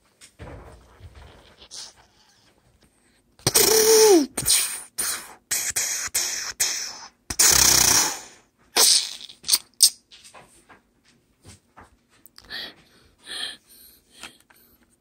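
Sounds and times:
child making gunfire noises: 0:03.5 - 0:04.7.

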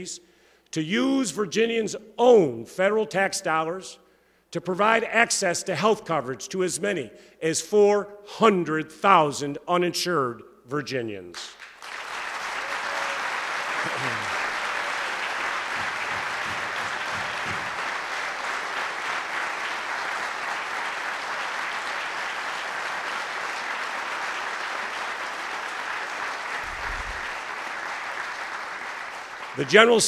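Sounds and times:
audience applauding: 0:11.5 - 0:30.0.

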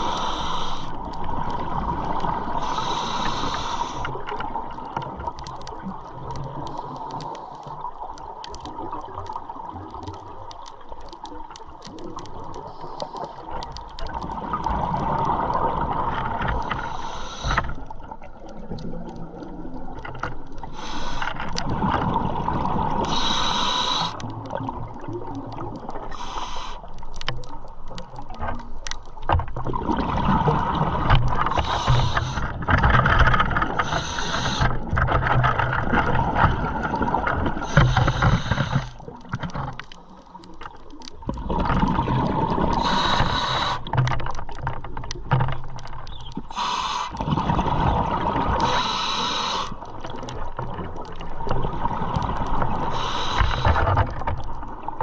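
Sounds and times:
water rushing past hull: 0:29.3 - 0:39.7, 0:41.2 - 0:55.0.

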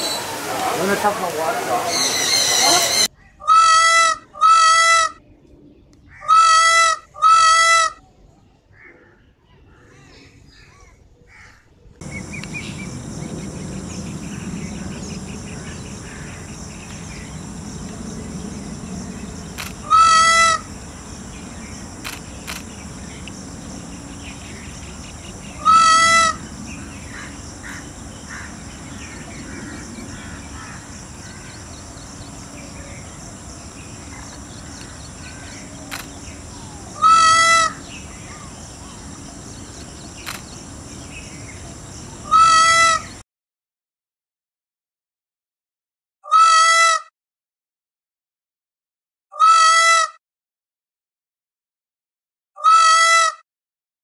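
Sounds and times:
high-pitched forest hiss: 0:00.0 - 0:03.1, 0:12.0 - 0:43.2
peacock calls: 0:00.0 - 0:05.2, 0:06.1 - 0:08.1, 0:12.0 - 0:43.2, 0:46.3 - 0:47.0, 0:49.4 - 0:50.1, 0:52.6 - 0:53.4.

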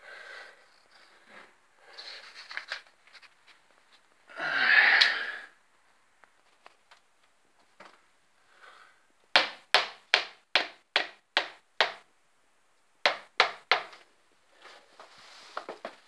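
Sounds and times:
hammer hitting nail: 0:09.3 - 0:12.0, 0:13.0 - 0:14.0.

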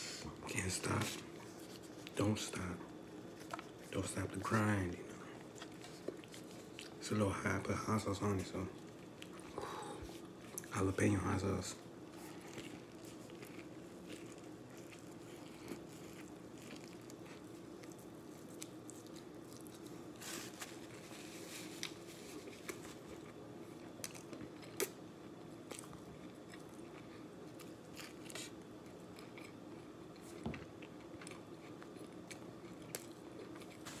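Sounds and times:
person chewing food: 0:05.1 - 0:07.0, 0:08.7 - 0:10.7, 0:12.1 - 0:34.0.

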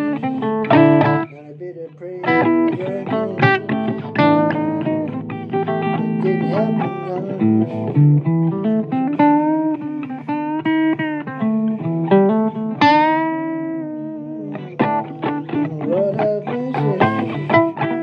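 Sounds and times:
blues guitar music: 0:00.0 - 0:18.0.

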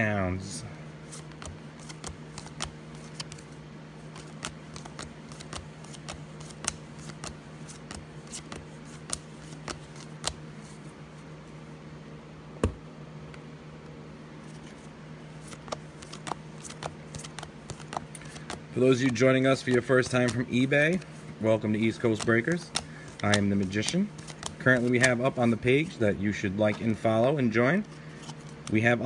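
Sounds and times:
steady low hum: 0:00.0 - 0:29.0
trading cards flicking: 0:01.0 - 0:10.8, 0:15.4 - 0:28.9.

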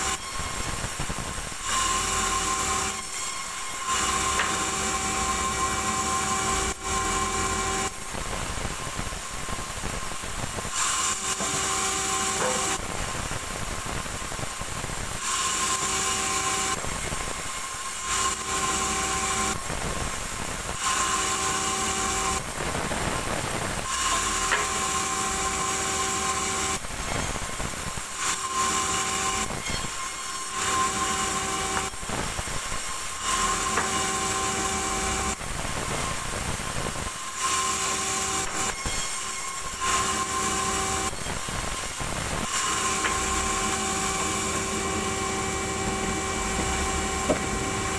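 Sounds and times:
band saw whining through wood: 0:00.0 - 0:47.9.

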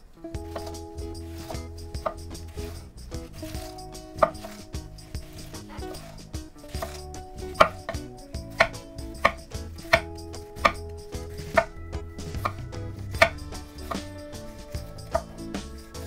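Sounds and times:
knife slicing cabbage: 0:00.5 - 0:07.8
knife knocking on wooden board: 0:03.4 - 0:15.4.

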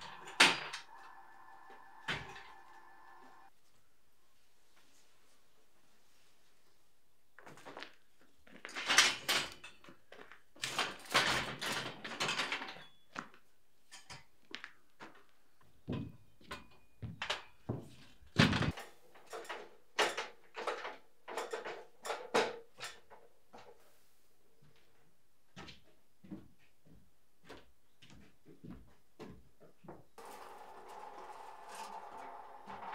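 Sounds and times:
steel scaffold parts clanking: 0:00.0 - 0:03.5, 0:30.2 - 0:32.9.

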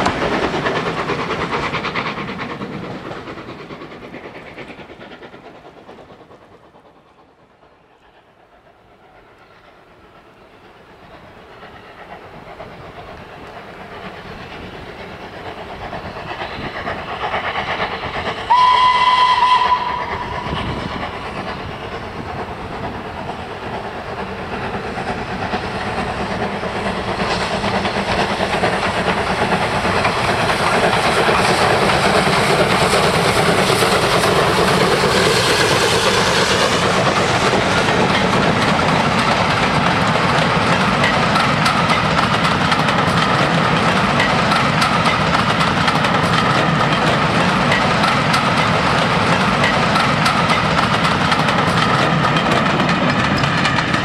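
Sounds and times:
steam locomotive running: 0:00.0 - 0:54.0
steam train whistle: 0:18.4 - 0:20.8
wheels clicking over rail joints: 0:19.8 - 0:54.0.

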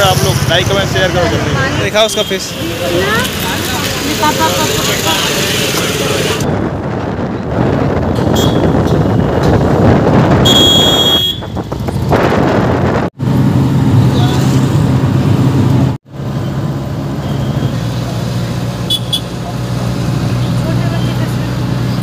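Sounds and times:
auto-rickshaw engine drone: 0:00.0 - 0:10.4, 0:11.2 - 0:22.0
wind and road noise: 0:00.0 - 0:22.0
horn beeping: 0:10.4 - 0:11.7, 0:18.8 - 0:19.4.

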